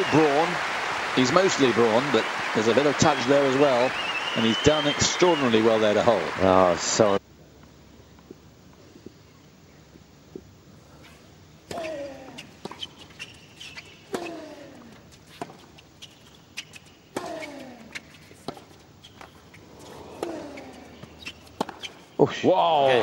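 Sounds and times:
racket hitting tennis ball: 16.6s - 22.1s.

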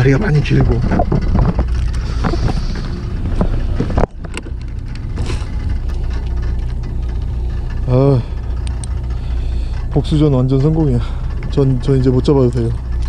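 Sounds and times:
boat engine rumbling: 0.0s - 13.0s
wind on microphone: 0.6s - 5.9s.

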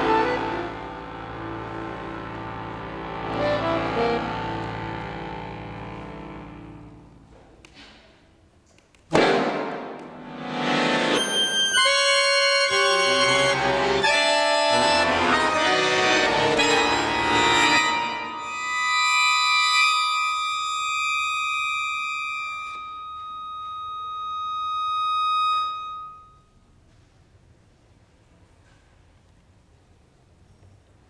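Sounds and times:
accordion playing: 0.0s - 7.2s, 9.2s - 26.4s.

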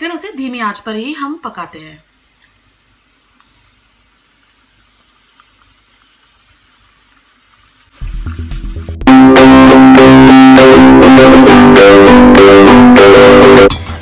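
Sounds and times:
oil sizzling: 0.0s - 13.6s
loud low-toned sound: 8.0s - 13.7s.

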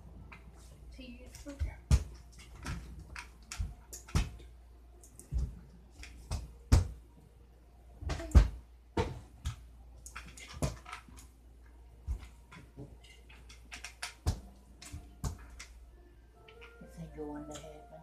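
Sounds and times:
thuds and knocks in a room: 5.2s - 7.1s, 8.0s - 9.7s.

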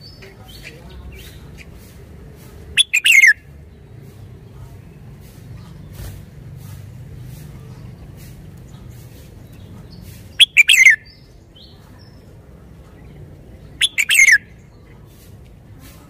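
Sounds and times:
bird warbling: 2.8s - 3.4s, 10.4s - 11.1s, 13.8s - 14.5s.

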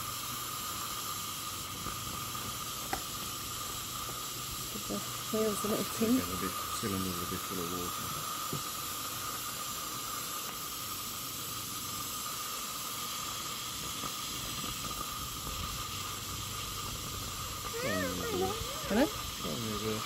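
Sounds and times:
steam hissing: 0.0s - 20.0s
thin steady tone: 0.0s - 20.0s.

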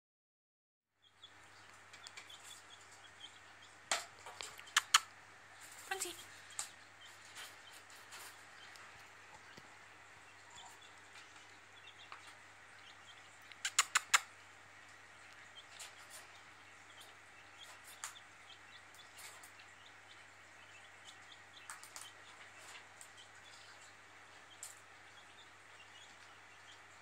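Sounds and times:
cockatoo clicking and clucking: 1.3s - 27.0s
sharp short bird calls: 13.6s - 14.4s.

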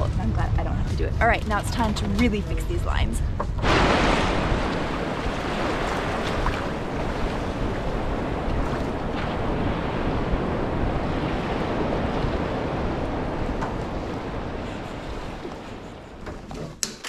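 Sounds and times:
ocean surf washing over sand: 3.6s - 16.2s.

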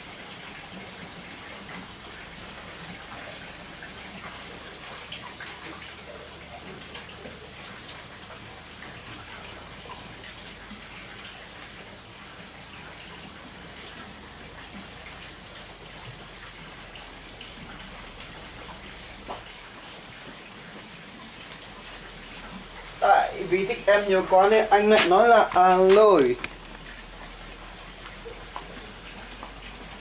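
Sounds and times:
wood fire crackling: 17.0s - 30.0s.

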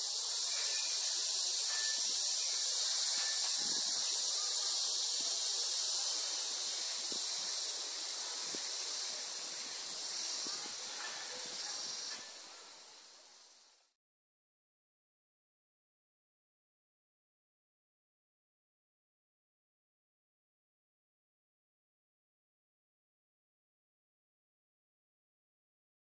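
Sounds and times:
high-pitched hiss: 0.0s - 14.0s.

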